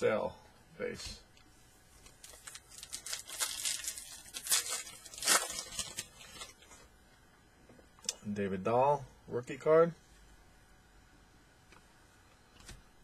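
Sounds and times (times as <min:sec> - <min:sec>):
wrapper tearing and crinkling: 0:02.2 - 0:06.6.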